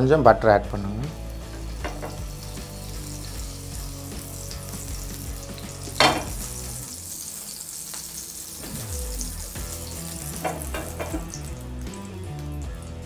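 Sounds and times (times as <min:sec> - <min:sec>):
butter sizzling in a pan: 0:00.7 - 0:13.0
pan knocking on burner: 0:01.5 - 0:02.6, 0:05.8 - 0:06.6, 0:10.3 - 0:11.4.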